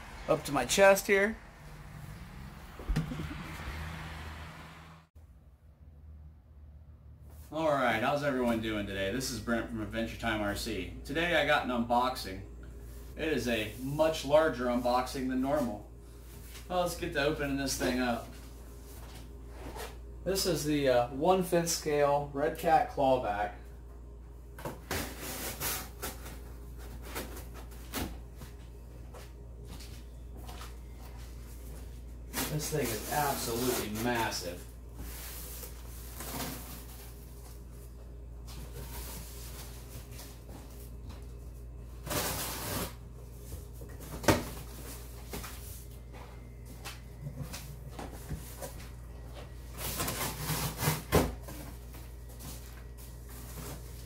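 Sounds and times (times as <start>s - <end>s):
cardboard scraping and rubbing: 49.8s - 51.4s.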